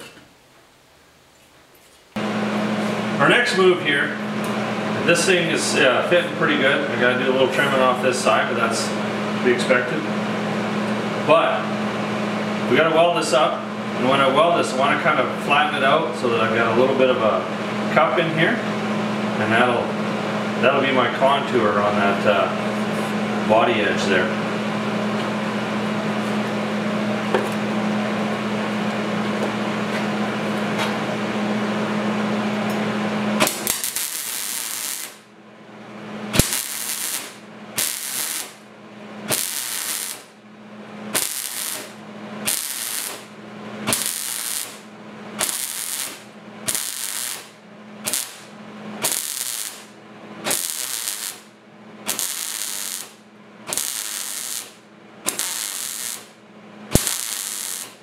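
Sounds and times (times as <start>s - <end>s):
steady hum with hiss: 0.0s - 58.0s
welder crackling bursts: 33.4s - 35.3s, 36.3s - 40.4s, 41.1s - 58.0s.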